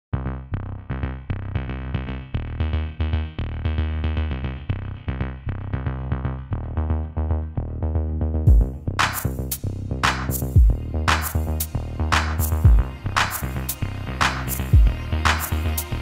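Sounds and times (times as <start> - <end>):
fast electronic music: 8.5 - 16.0.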